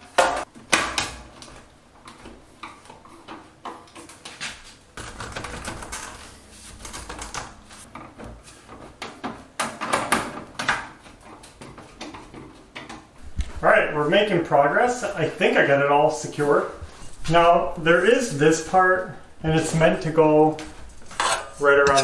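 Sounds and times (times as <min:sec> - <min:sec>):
metal scraping: 0:21.0 - 0:22.0.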